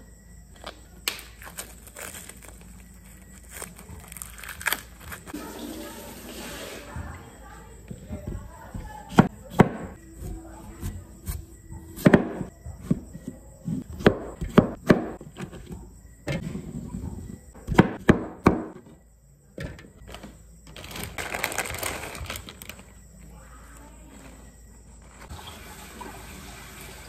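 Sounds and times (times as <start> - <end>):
lettuce rustling: 0.6 - 6.7, 20.1 - 25.5.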